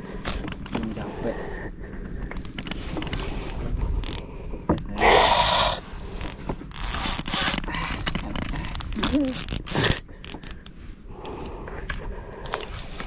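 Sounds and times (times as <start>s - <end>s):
fishing reel clicking and whirring: 2.3s - 2.6s, 4.0s - 7.9s, 8.6s - 10.7s, 11.9s - 12.7s.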